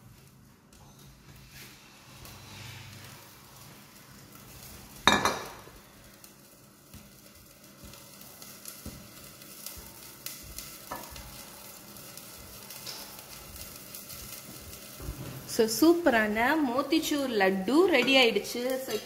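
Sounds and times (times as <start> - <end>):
metal bowl clanking on counter: 5.1 - 5.6.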